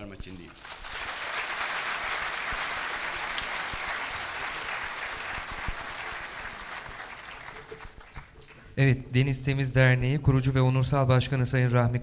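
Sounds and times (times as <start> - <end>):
audience applauding: 0.4 - 8.8.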